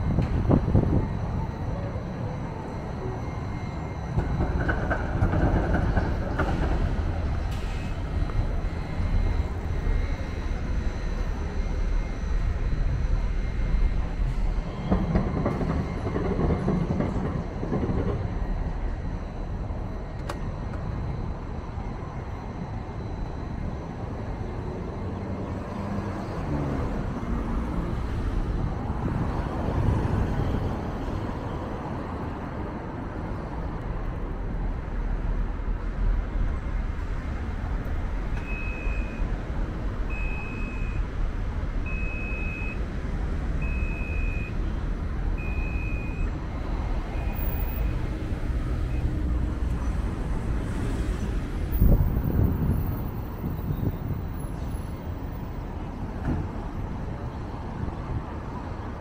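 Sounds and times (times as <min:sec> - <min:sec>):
city street traffic: 0:00.0 - 0:59.0
short high beeps: 0:38.4 - 0:39.3.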